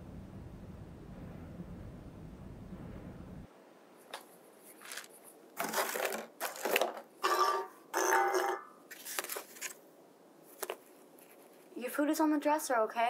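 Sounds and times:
foil crinkling and rustling: 0:04.7 - 0:07.1, 0:08.9 - 0:09.8
plate scraping: 0:04.7 - 0:09.5.

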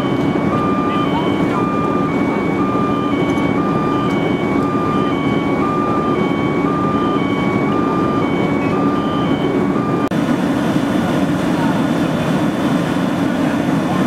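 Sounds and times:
two-tone electronic alarm: 0:00.0 - 0:10.1
fire engine running: 0:00.0 - 0:14.0.

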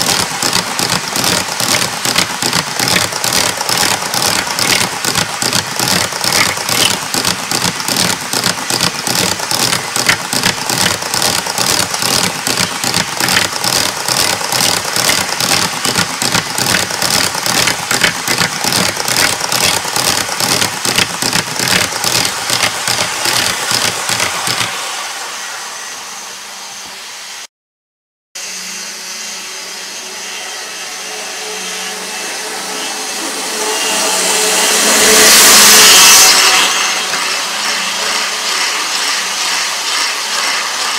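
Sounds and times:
model train wheels clicking: 0:00.0 - 0:25.3, 0:34.7 - 0:40.9
model locomotive motor hum: 0:00.0 - 0:27.5, 0:28.4 - 0:40.9.

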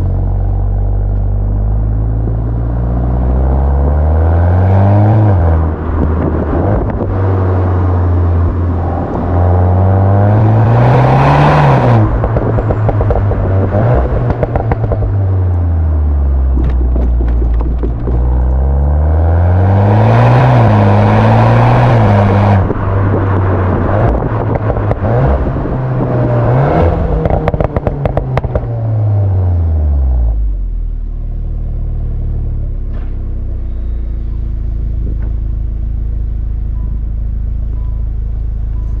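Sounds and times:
car engine revving: 0:00.0 - 0:30.7
exhaust pops and crackles: 0:11.9 - 0:15.6, 0:16.4 - 0:18.8, 0:22.6 - 0:28.8.

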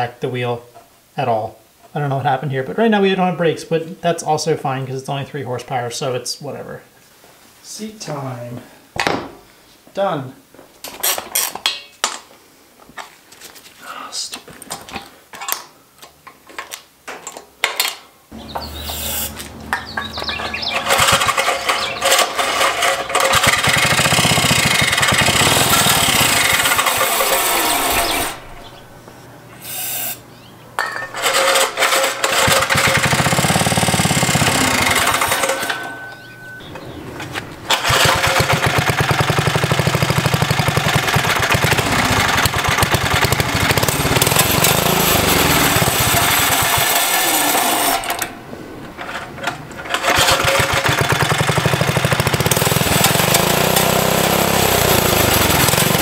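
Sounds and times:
small engine running unevenly: 0:18.4 - 0:28.5, 0:31.9 - 0:35.7, 0:37.7 - 0:48.0, 0:50.0 - 0:56.0.

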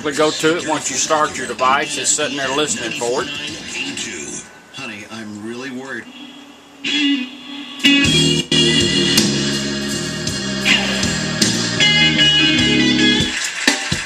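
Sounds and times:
guitar music from a radio speaker: 0:00.0 - 0:04.6, 0:06.0 - 0:14.0
talk radio broadcast: 0:00.0 - 0:08.0.

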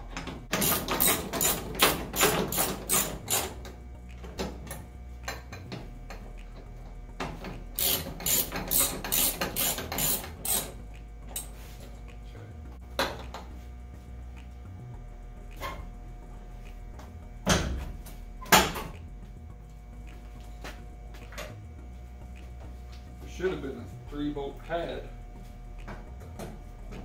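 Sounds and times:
hand ratchet clicking: 0:00.1 - 0:11.6.

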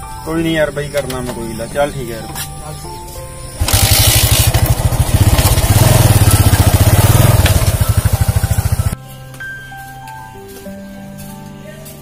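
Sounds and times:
small motorcycle engine running: 0:03.6 - 0:09.0.

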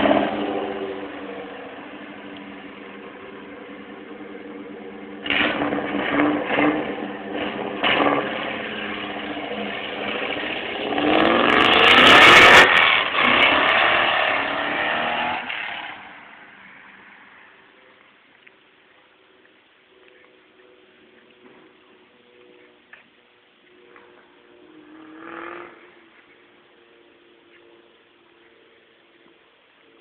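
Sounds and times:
race car engine revving: 0:00.0 - 0:16.4, 0:24.0 - 0:27.0.

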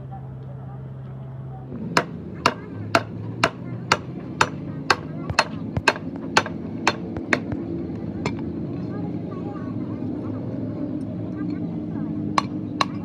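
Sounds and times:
hammer striking steel pin: 0:02.0 - 0:07.6, 0:12.4 - 0:13.0.

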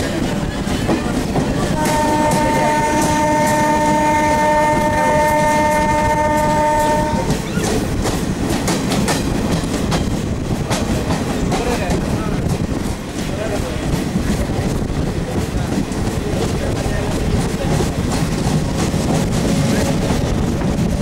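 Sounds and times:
train wheels clacking on rails: 0:00.0 - 0:21.0
train horn long blast: 0:01.7 - 0:07.4.

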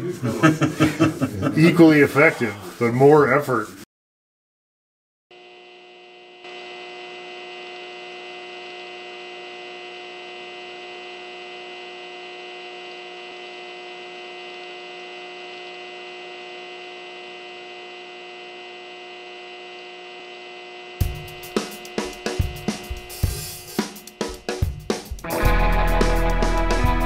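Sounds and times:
fluorescent tube light buzzing: 0:05.3 - 0:25.2.

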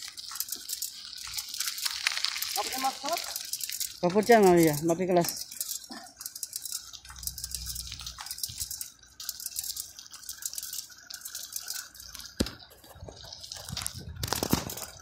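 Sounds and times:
bicycle rattling on pavement: 0:00.0 - 0:15.0.

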